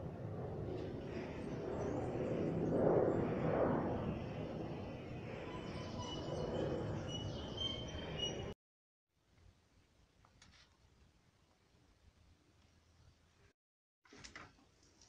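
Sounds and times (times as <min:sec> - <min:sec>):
vehicle or aircraft passing: 0:00.0 - 0:08.6
distant traffic: 0:03.9 - 0:08.5.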